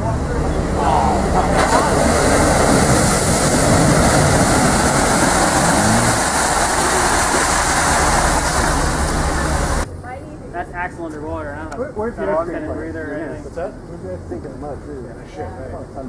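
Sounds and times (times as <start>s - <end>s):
truck engine running hard: 0.0s - 9.9s
mud and water splashing: 0.2s - 9.9s.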